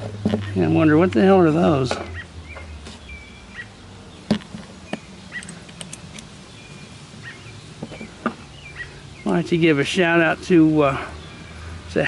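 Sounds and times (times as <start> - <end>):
birds chirping: 0.0 - 12.0
small metal parts clicking: 5.4 - 6.3.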